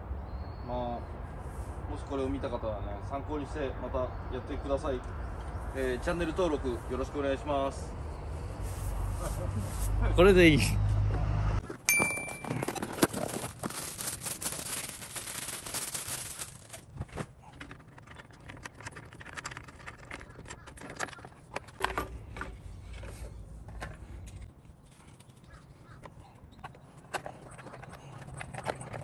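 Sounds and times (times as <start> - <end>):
cardboard box rustling: 11.6 - 17.6.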